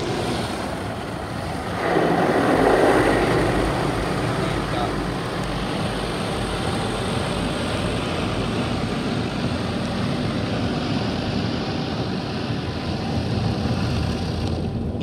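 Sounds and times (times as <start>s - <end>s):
water spraying: 0.0s - 11.4s
low rumble: 0.0s - 15.0s.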